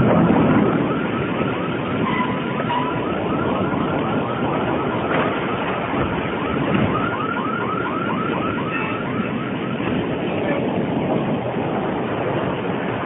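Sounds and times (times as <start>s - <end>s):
electronic siren warbling: 0.0s - 9.8s
steady rumbling noise: 0.0s - 13.0s.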